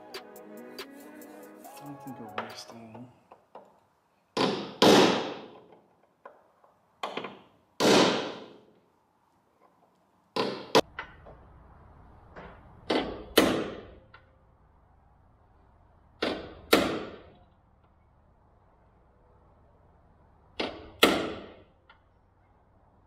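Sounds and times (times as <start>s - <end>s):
hammer striking metal punch: 12.9s - 14.0s, 16.2s - 17.3s.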